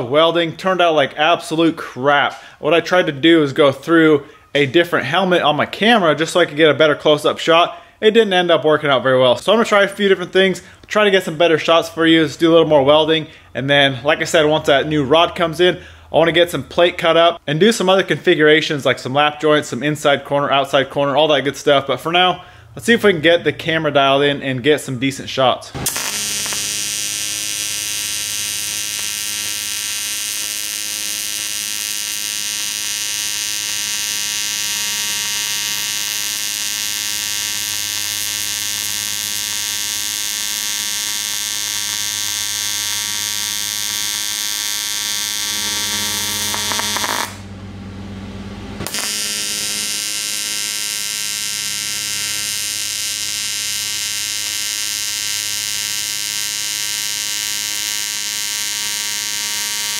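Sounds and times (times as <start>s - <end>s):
welding arc buzzing: 25.7s - 47.6s, 48.8s - 59.9s.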